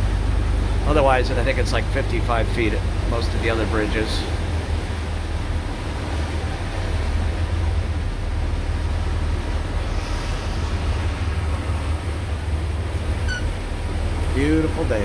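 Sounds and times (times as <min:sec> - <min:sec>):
boat engines droning: 0:00.0 - 0:15.0
wind and water noise: 0:00.0 - 0:15.0.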